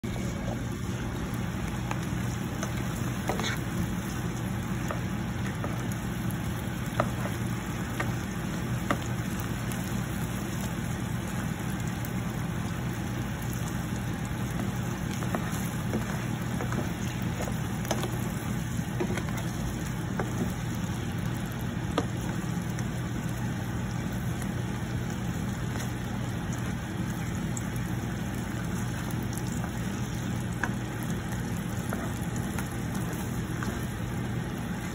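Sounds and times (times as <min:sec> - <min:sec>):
steady low hum: 0:00.0 - 0:34.9
shrimp sizzling in sauce: 0:00.1 - 0:34.9
spatula scraping pan: 0:02.6 - 0:03.8.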